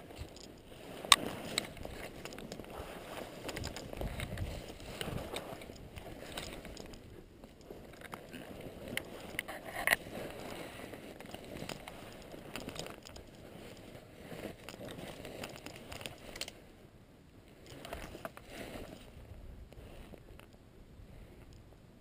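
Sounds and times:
footsteps through brush: 0:00.0 - 0:09.4, 0:10.0 - 0:16.4
twigs snapping: 0:11.2 - 0:13.4.

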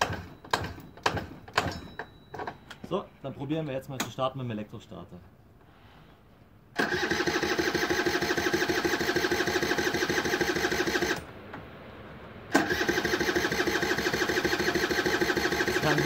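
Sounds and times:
electric starter cranking engine: 0:00.0 - 0:02.0, 0:06.8 - 0:11.3, 0:12.5 - 0:16.0.

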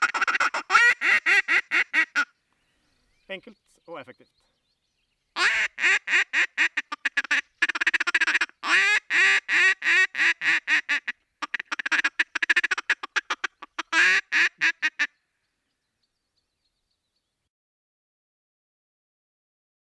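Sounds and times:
duck call quacks and feeding chatter: 0:00.0 - 0:02.3, 0:05.4 - 0:15.1.

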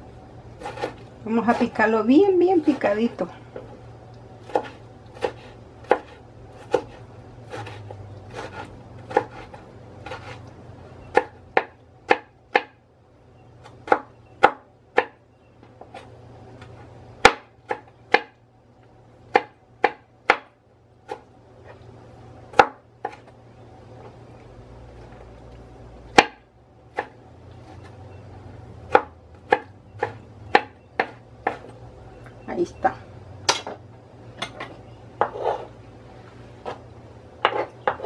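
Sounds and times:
knife chopping on wooden board: 0:00.6 - 0:01.8, 0:04.4 - 0:10.4, 0:11.1 - 0:12.8, 0:13.8 - 0:15.2, 0:15.8 - 0:18.4, 0:19.3 - 0:21.2, 0:22.5 - 0:23.3, 0:26.1 - 0:27.8, 0:28.9 - 0:31.7, 0:35.2 - 0:35.7, 0:37.4 - 0:38.0.

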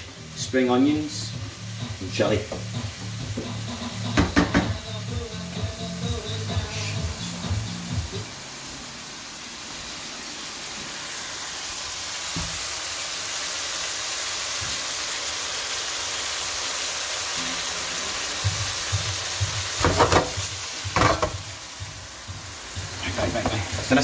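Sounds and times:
meat sizzling in a frying pan: 0:00.0 - 0:24.0
knocks: 0:04.2 - 0:04.8.

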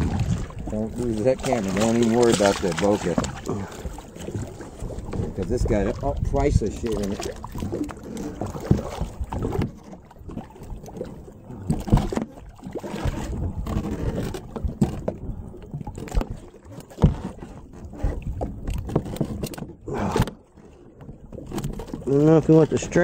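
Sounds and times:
water sloshing against boat hull: 0:00.0 - 0:23.0
wind: 0:00.0 - 0:23.0
sharp knocks and thumps: 0:15.9 - 0:17.6.

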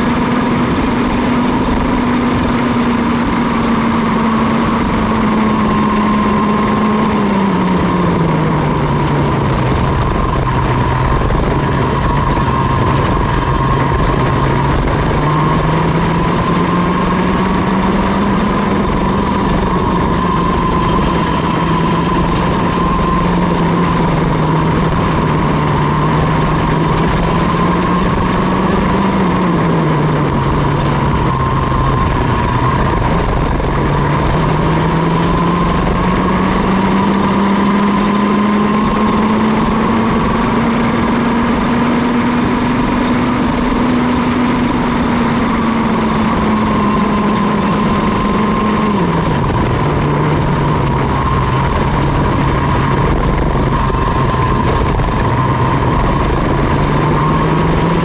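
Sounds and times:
kart engine running hard: 0:00.0 - 0:58.0.

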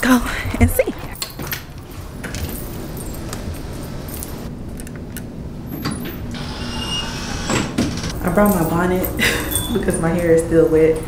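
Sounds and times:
steady low hum: 0:00.0 - 0:11.0
light metallic jingling: 0:01.1 - 0:04.5, 0:08.2 - 0:11.0.

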